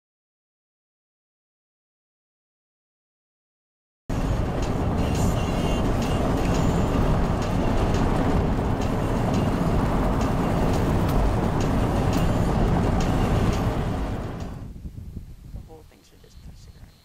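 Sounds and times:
car road and wind noise: 4.1 - 16.9.

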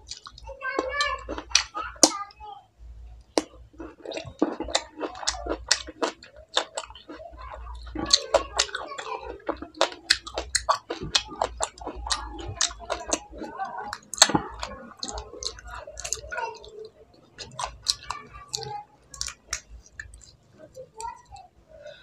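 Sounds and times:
wet chewing clicks and smacks: 0.0 - 2.2, 3.2 - 21.5.

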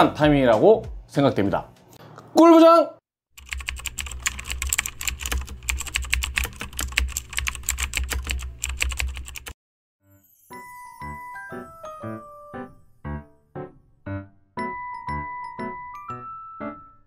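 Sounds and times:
keyboard typing clicks: 3.4 - 9.6
bell-like chiming notes: 10.1 - 13.0.

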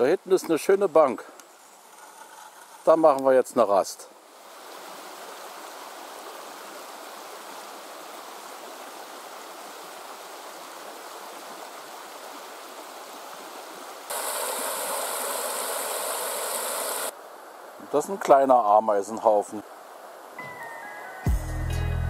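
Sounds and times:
stream water rushing: 0.0 - 21.3.

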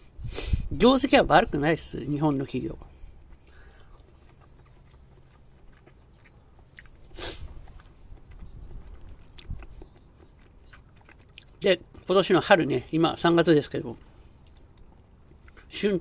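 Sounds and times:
person chewing salad: 2.9 - 12.7, 13.4 - 15.8.

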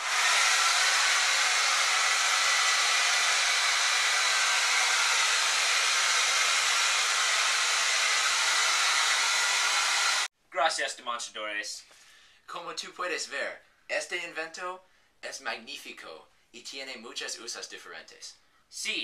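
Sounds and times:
hair dryer running: 0.0 - 10.3.

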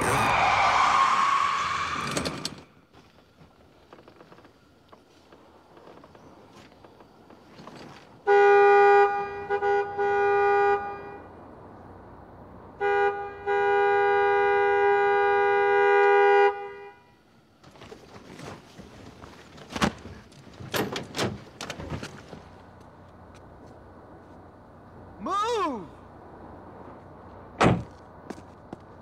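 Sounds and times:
car horn honking: 8.2 - 11.4, 12.8 - 17.2.

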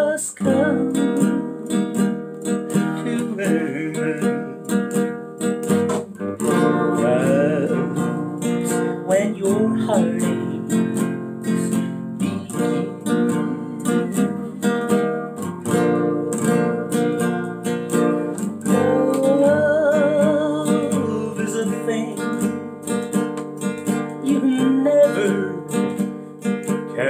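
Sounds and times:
classical guitar strummed: 0.0 - 27.0.

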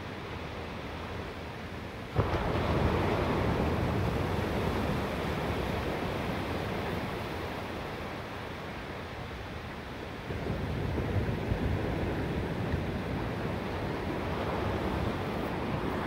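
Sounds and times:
thunder crack and rumble: 2.2 - 6.5.

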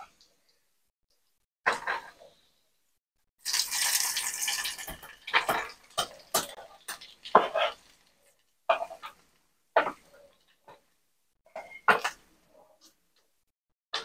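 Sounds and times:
pork sizzling in hot oil: 3.4 - 8.4.

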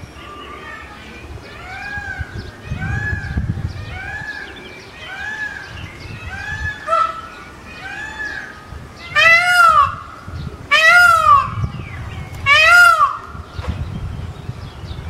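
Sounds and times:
peacock screaming: 1.6 - 5.7, 6.3 - 11.6, 12.4 - 13.4.

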